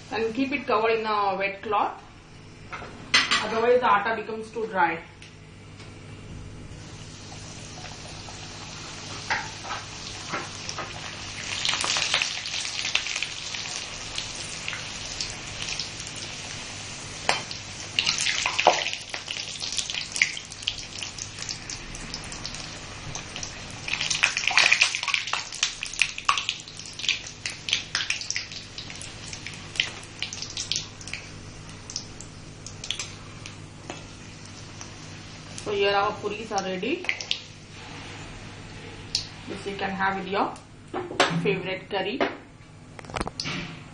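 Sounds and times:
deep-frying sizzle and crackling: 6.7s - 39.8s.

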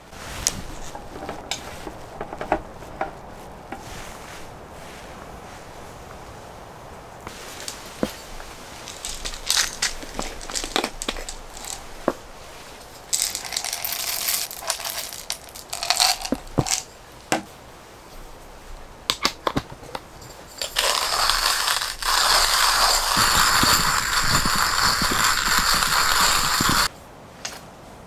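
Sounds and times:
hand coffee grinder grinding: 8.0s - 16.9s, 20.2s - 26.9s
coffee beans rattling into grinder: 8.9s - 11.8s, 13.1s - 16.8s, 20.5s - 26.9s
grinder crank clicks: 20.6s - 26.9s.

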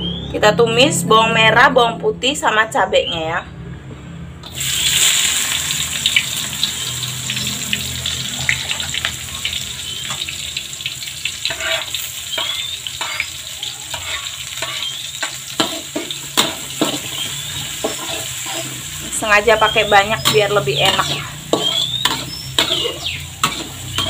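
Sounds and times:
food sizzling in hot oil: 4.4s - 24.0s
metal spatula scraping and tapping: 11.4s - 13.3s, 13.9s - 17.1s, 17.7s - 18.8s, 20.2s - 24.0s.

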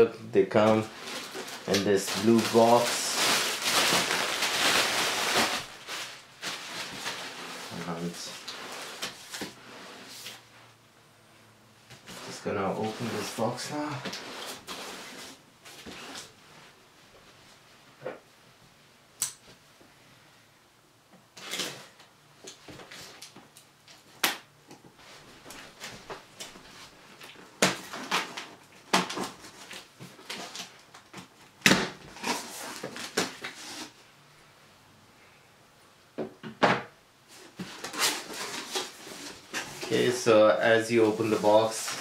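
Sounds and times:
cardboard scraping and rustling: 12.0s - 16.4s, 32.1s - 34.0s, 37.3s - 42.0s.

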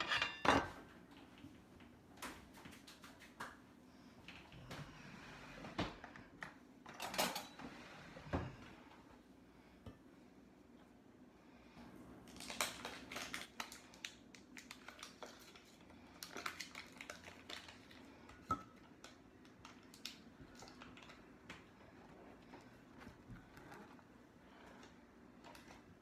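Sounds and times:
kitchen utensils and dishes clinking: 0.0s - 0.9s, 6.9s - 8.5s.

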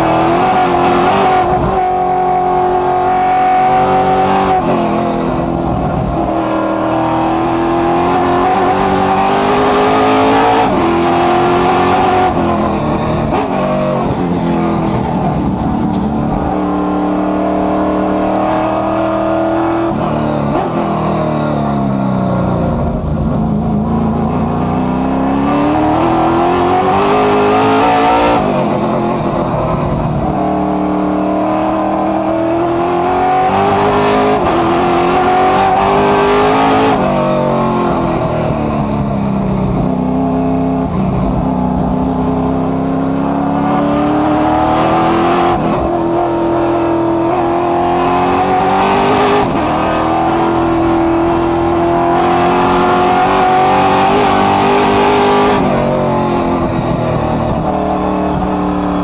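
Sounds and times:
race car engine accelerating: 0.0s - 59.0s.

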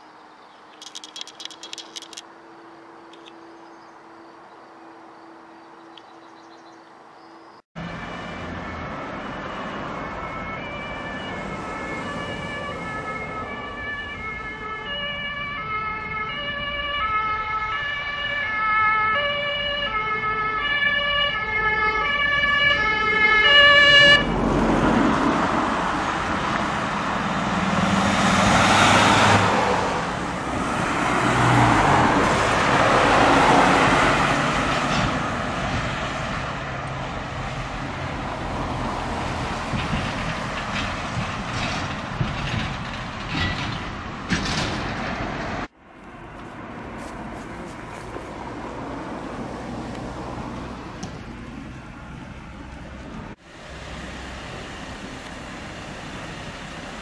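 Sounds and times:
vehicles driving by: 0.0s - 57.0s
two-tone sirens: 1.7s - 6.0s, 7.8s - 43.7s.

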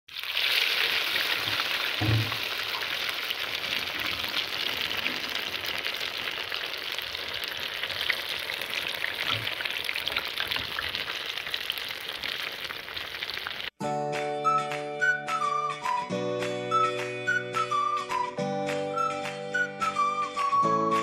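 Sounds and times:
food deep-frying in oil: 0.1s - 13.8s.

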